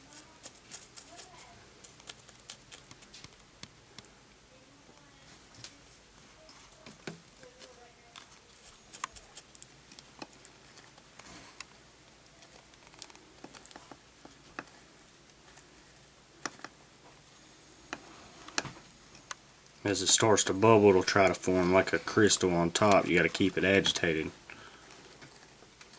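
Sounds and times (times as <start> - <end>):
salt crystals scraping metal spoon: 0.0 - 3.4.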